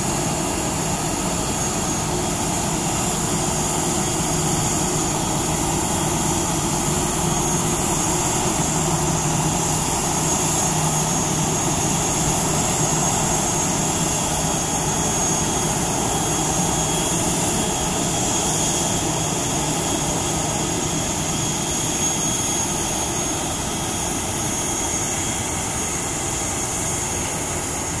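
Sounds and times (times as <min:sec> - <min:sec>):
jet engines running: 0:00.0 - 0:28.0.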